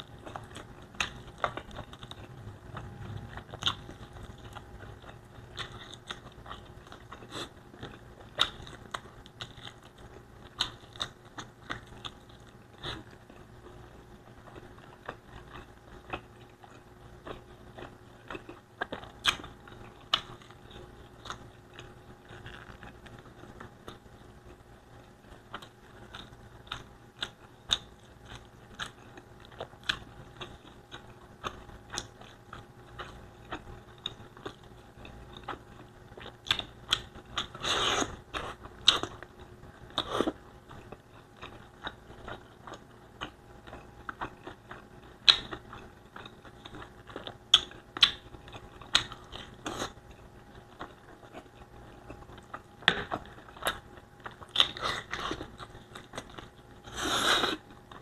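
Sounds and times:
wet chewing and lip smacks: 25.5 - 56.9.

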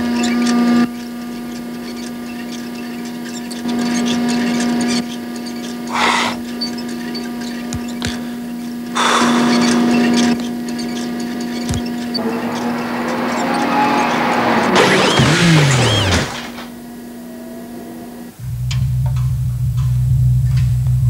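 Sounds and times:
steady electric hum: 15.1 - 21.0.

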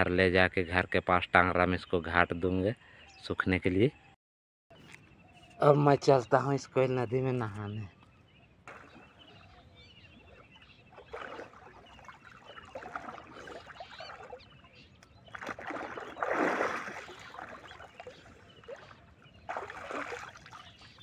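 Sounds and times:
person splashing in water: 8.7 - 9.6, 10.2 - 21.0.

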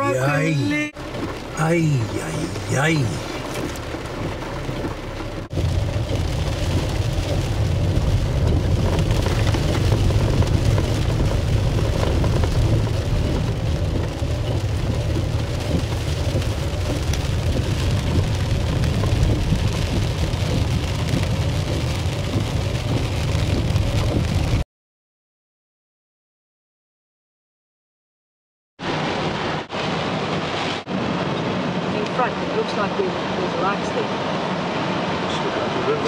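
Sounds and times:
car driving through water: 0.0 - 24.6, 28.8 - 36.0
heavy rain: 0.0 - 24.6, 28.8 - 36.0
low rumble: 0.0 - 24.6.

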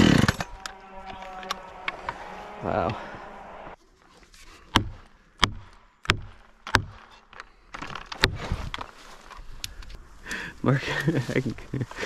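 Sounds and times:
rustling: 6.9 - 10.0.

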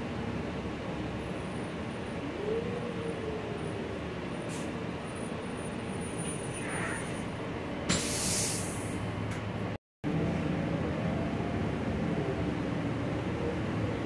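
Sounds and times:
bus engine and road noise: 0.0 - 14.0
brief air hiss: 7.9 - 9.0.

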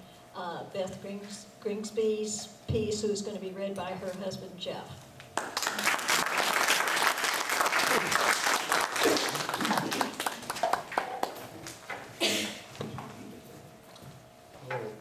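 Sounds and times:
small audience applauding: 5.4 - 11.8.

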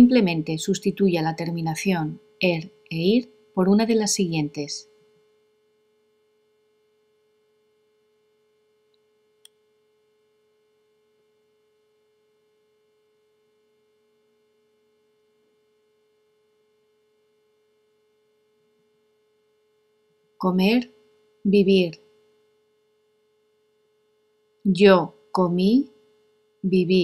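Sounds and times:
faint steady hum: 0.0 - 27.0
faint click: 8.9 - 9.6.

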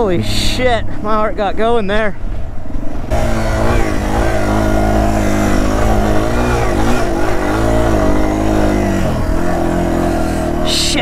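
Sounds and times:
motorcycle engine at low revs: 2.2 - 11.0.

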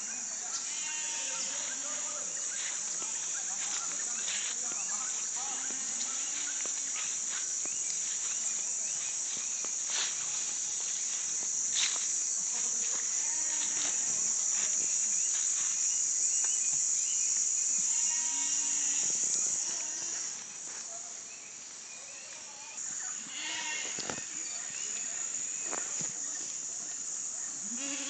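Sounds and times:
insects chorus: 0.0 - 28.0
goat bleating: 0.6 - 1.8, 23.2 - 24.0, 27.6 - 28.0.

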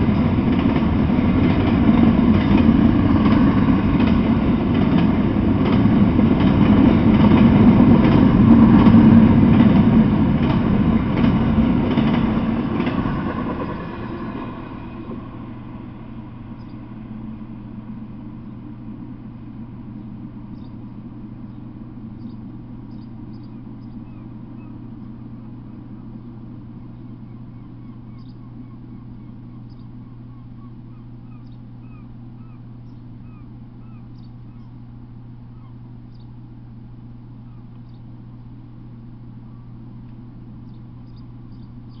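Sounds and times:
rumble: 0.0 - 42.0
steady low hum: 0.0 - 42.0
birds chirping: 16.3 - 17.0, 18.2 - 36.5, 37.3 - 42.0.

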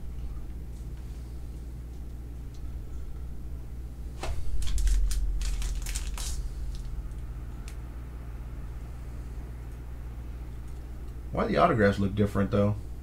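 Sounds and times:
steady low hum: 0.0 - 13.0
cardboard packaging crinkling: 4.4 - 6.9.

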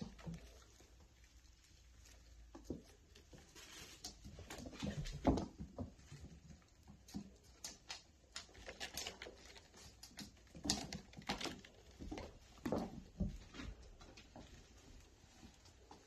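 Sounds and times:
kittens scuffling on wooden floor: 0.0 - 16.0.

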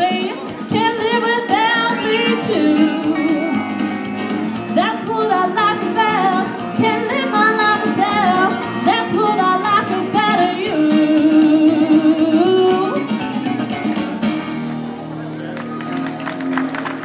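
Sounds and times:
woman singing country song: 0.0 - 4.0, 4.6 - 13.2
backing music with guitar: 0.0 - 17.0.

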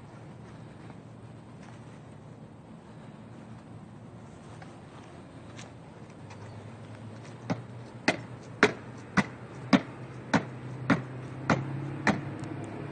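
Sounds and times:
sneakers landing on concrete steps: 7.4 - 12.3.

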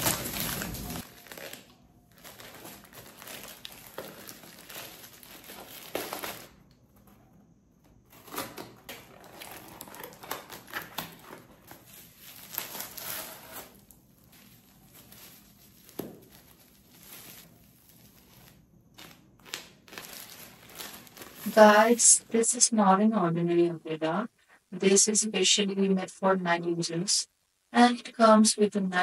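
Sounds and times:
packaging crinkling and rustling: 0.0 - 7.2, 8.1 - 22.0.

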